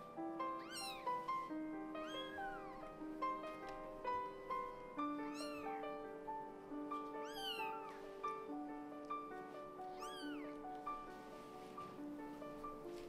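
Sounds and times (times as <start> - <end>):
soft background music: 0.0 - 13.0
cat meowing: 0.5 - 1.2, 2.0 - 3.0, 5.3 - 5.8, 7.2 - 8.0, 9.9 - 10.6.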